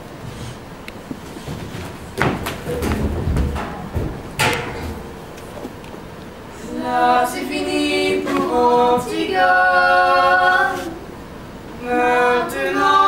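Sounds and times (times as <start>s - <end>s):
voices singing a cappella: 6.6s - 13.0s.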